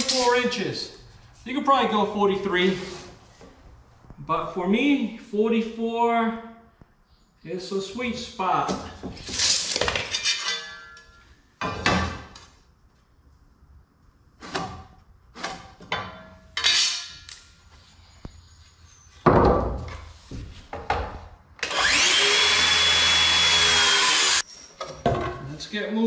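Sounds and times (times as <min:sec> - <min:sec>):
circular saw whining: 0:21.6 - 0:24.4.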